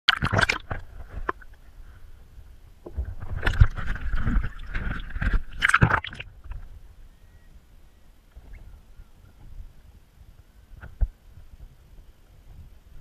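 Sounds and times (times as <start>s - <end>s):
sea water sloshing and splashing: 0.1s - 1.6s, 3.0s - 6.7s.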